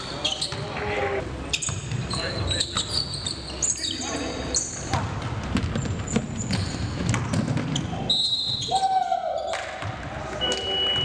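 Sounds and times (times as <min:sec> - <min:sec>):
sneaker squeaks: 0:00.0 - 0:00.8, 0:01.5 - 0:05.1, 0:05.7 - 0:08.8, 0:09.4 - 0:11.0
basketball dribbling on wooden floor: 0:05.0 - 0:07.7.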